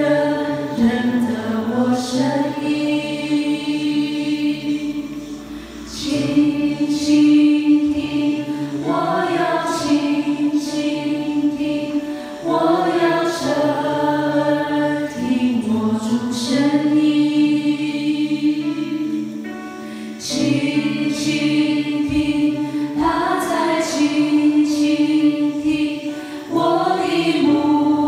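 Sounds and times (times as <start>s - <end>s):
electronic keyboard chords: 0.0s - 28.0s
group singing worship song: 0.0s - 28.0s.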